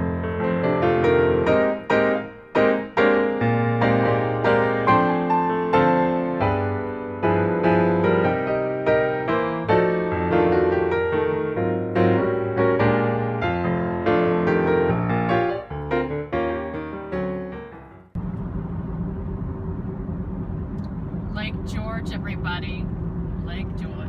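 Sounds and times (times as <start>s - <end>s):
piano music: 0.0s - 18.2s
car driving on highway: 18.1s - 24.0s.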